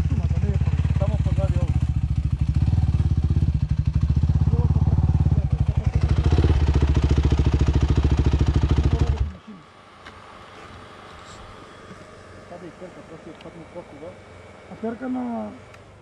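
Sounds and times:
dirt bike engine idling: 0:00.0 - 0:09.6.

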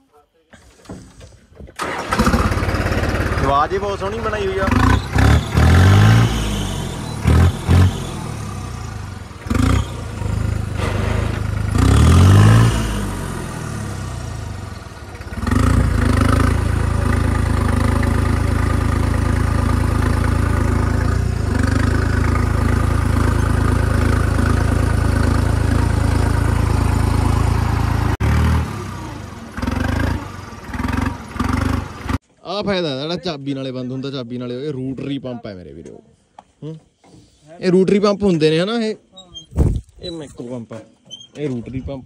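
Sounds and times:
tractor diesel engine: 0:00.5 - 0:32.2.

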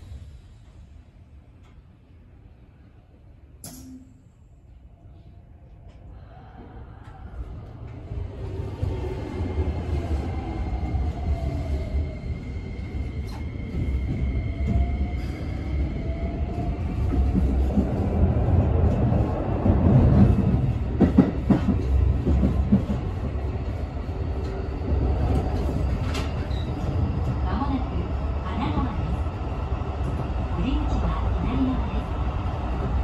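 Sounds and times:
rail joint clicks: 0:03.6 - 0:04.3, 0:25.2 - 0:27.4.

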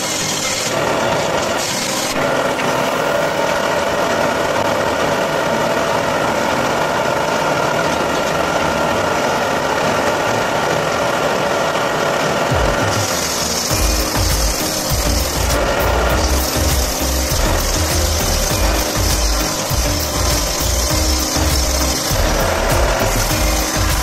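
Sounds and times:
motor running with no load: 0:00.0 - 0:24.0
power tool cutting wood: 0:00.0 - 0:24.0.

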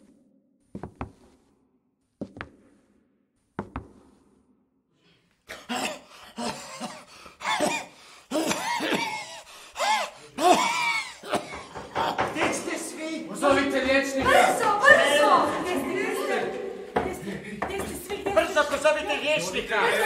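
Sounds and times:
person coughing: 0:05.5 - 0:11.8.

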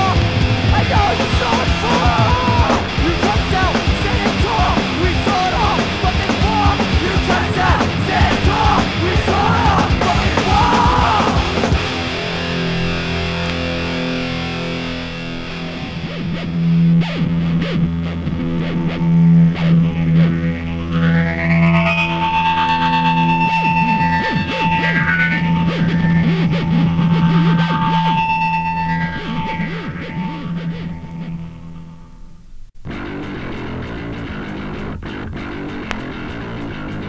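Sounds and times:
drums: 0:00.0 - 0:31.5, 0:32.8 - 0:37.0
distorted guitars: 0:00.0 - 0:37.0
ringing guitar chords: 0:00.0 - 0:37.0
person screaming vocals: 0:00.8 - 0:11.8.

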